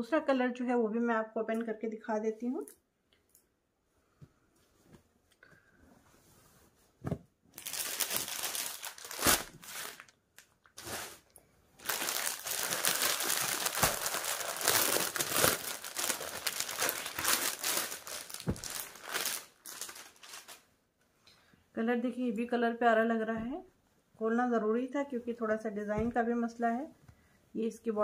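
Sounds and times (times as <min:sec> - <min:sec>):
plastic packaging crinkling: 0:07.6 - 0:20.7.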